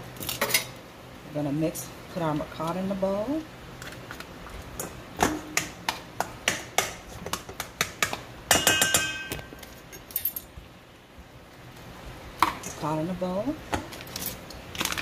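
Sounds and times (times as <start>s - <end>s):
metal bowl ringing: 8.5s - 9.5s.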